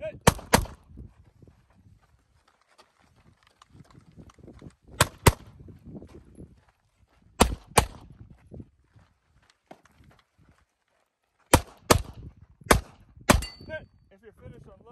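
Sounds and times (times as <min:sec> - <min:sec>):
pistol shots: 0:00.2 - 0:00.8, 0:05.0 - 0:05.5, 0:07.4 - 0:08.0, 0:11.5 - 0:13.7
footsteps running on dirt trail: 0:00.8 - 0:12.7.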